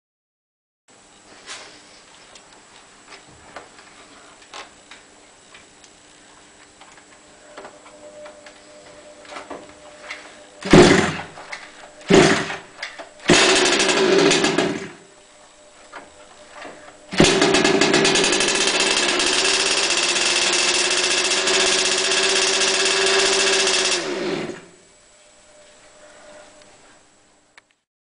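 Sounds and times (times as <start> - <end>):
small engine running: 10.6 - 11.3, 12.1 - 12.6, 13.3 - 15.0, 17.1 - 24.8
recoil starter pulls: 12.1 - 12.6, 13.3 - 14.9, 17.2 - 24.7.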